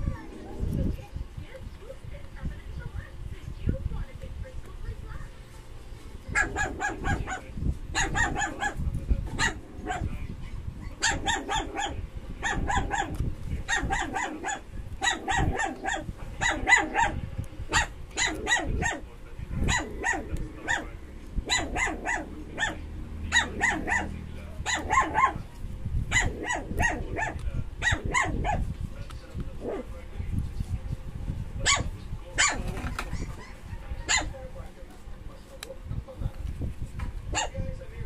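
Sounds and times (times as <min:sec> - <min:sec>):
dog yapping: 0:06.3 - 0:19.0, 0:19.6 - 0:25.5, 0:26.1 - 0:28.6, 0:31.6 - 0:34.4, 0:37.3 - 0:37.6.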